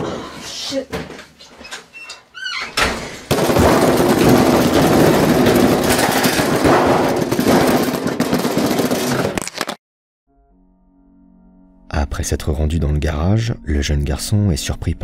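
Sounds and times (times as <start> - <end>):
knocks: 2.8 - 9.2
washing machine pounding and rattling: 2.8 - 9.3.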